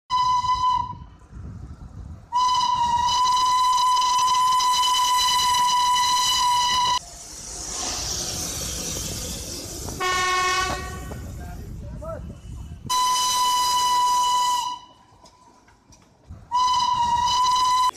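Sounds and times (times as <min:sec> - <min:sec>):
steam locomotive whistle: 0:00.1 - 0:01.1, 0:02.3 - 0:07.0, 0:10.0 - 0:11.2, 0:12.9 - 0:15.0, 0:16.5 - 0:17.9
steam hissing: 0:02.7 - 0:14.8.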